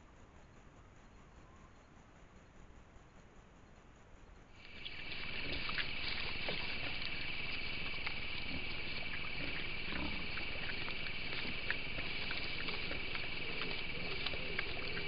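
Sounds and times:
night insects chorus: 0.0 - 15.0
hog grunting and snuffling: 4.6 - 15.0.

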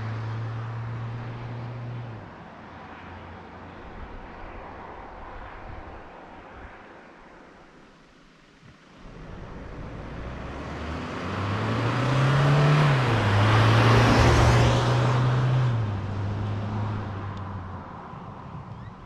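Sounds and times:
diesel truck driving past: 9.0 - 18.0.

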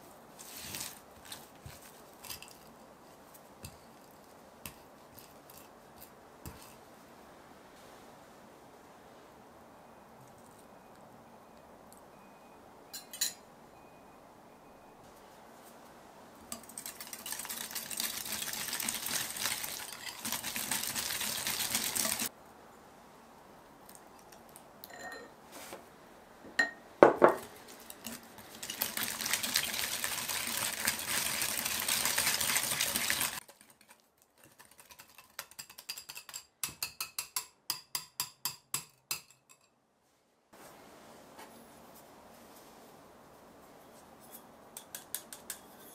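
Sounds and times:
clink on bowl: 12.9 - 13.9, 24.8 - 25.3
utensil beating in mixing bowl: 16.5 - 22.3, 27.2 - 36.4.

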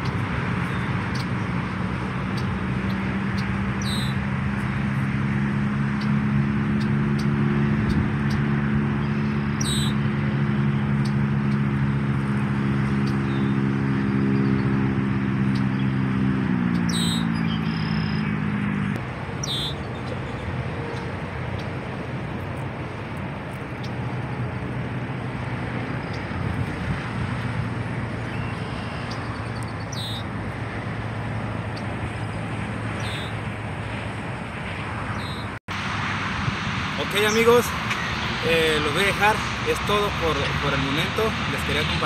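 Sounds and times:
freeway traffic rushing: 0.0 - 42.0
vehicle engine droning: 0.0 - 42.0
high bird chirps: 2.3 - 4.2, 9.0 - 10.0, 16.6 - 18.6, 19.4 - 21.7, 28.2 - 30.3, 33.0 - 33.4, 35.1 - 35.5.

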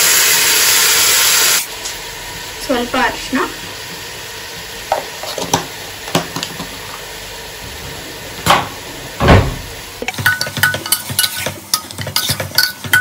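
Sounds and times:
meat sizzling in a pan: 0.0 - 7.6, 9.8 - 13.0
steel ladle scraping a pot: 10.2 - 13.0.

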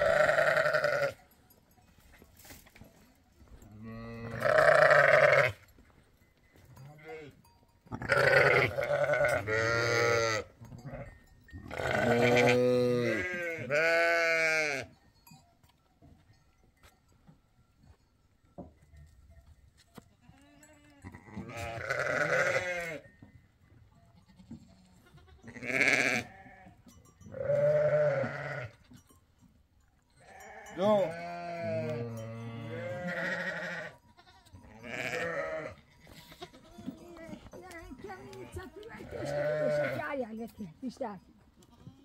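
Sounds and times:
goats bleating: 0.0 - 1.2, 3.8 - 5.6, 8.0 - 11.1, 11.7 - 14.9, 20.2 - 23.0, 24.2 - 26.8, 27.4 - 28.8, 30.3 - 40.1.

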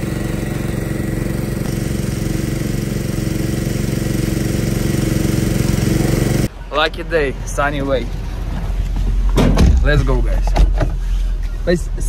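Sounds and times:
small petrol engine running: 0.0 - 6.5.

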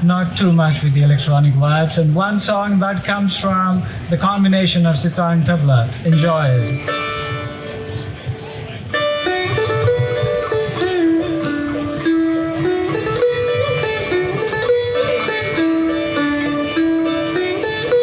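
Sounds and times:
sitar melody: 5.6 - 18.0
tabla drum strokes: 5.9 - 18.0.

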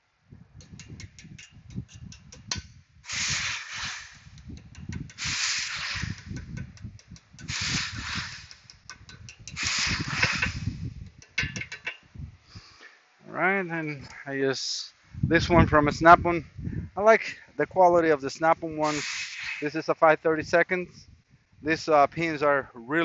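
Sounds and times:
hammer tapping a metal punch: 0.6 - 2.7, 8.6 - 9.6
hissing bursts: 3.0 - 4.4, 5.1 - 6.4, 7.4 - 8.8, 9.5 - 10.8, 18.8 - 19.8.

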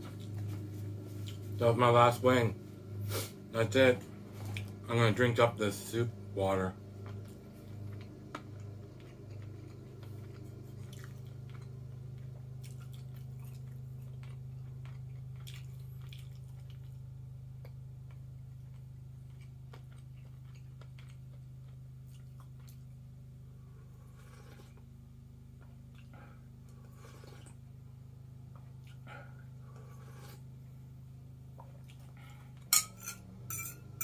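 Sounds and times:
chewing: 4.4 - 4.8, 7.0 - 17.0, 17.6 - 23.0, 25.6 - 27.6, 28.5 - 30.4, 31.5 - 32.7.

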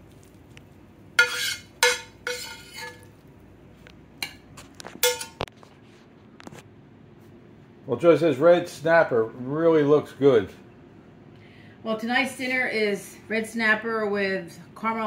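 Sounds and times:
metal spoon clinking on pan: 1.2 - 3.1, 4.2 - 4.4, 5.0 - 5.5.

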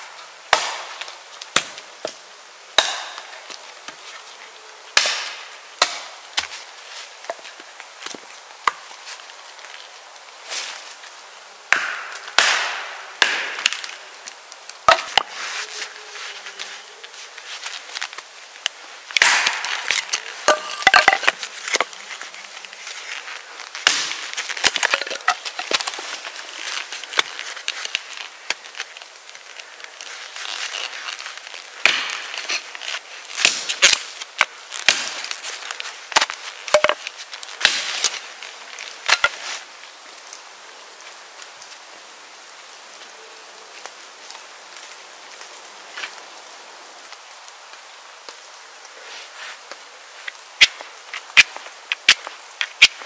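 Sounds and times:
hatchet chopping wood: 0.5 - 0.9, 2.8 - 3.2, 5.0 - 6.1, 11.7 - 13.8, 14.9 - 15.3, 19.2 - 21.9, 23.8 - 25.8, 31.8 - 32.2, 34.9 - 35.1, 37.6 - 37.9
wood cracking: 11.7 - 15.6, 16.3 - 39.6, 50.2 - 53.0.

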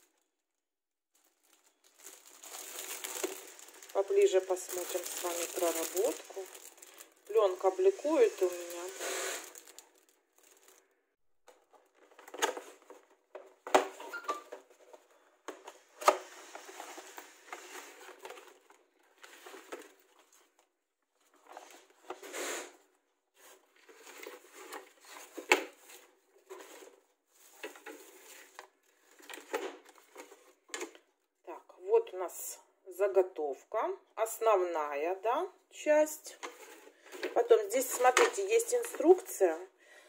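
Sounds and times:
packing filler rustling: 1.2 - 11.0.

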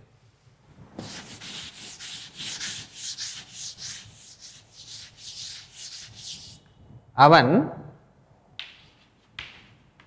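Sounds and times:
duster wiping blackboard: 0.9 - 6.6.

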